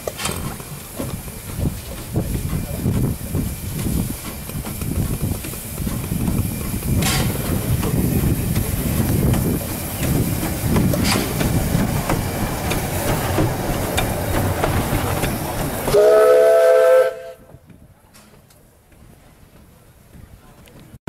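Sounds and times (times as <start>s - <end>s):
running gear clicks and clanks: 0.0s - 16.0s
steam locomotive hissing: 0.0s - 17.5s
steam whistle blast: 15.9s - 17.4s.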